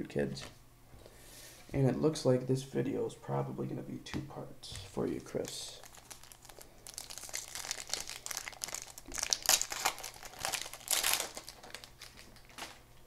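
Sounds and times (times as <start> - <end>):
plastic wrapper crinkling: 5.1 - 13.0.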